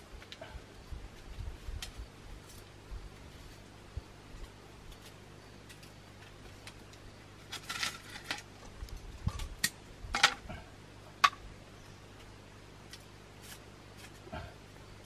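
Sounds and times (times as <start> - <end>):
bamboo strips tapping and scraping: 4.4 - 11.5, 12.1 - 14.5
bamboo cracking: 6.6 - 10.4.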